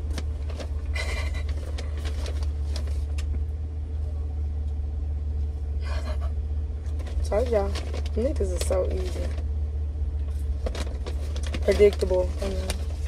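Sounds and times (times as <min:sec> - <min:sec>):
paper bag rustling: 0:00.0 - 0:03.3, 0:06.9 - 0:09.6, 0:10.2 - 0:13.0
car engine rumble in cabin: 0:00.0 - 0:13.0.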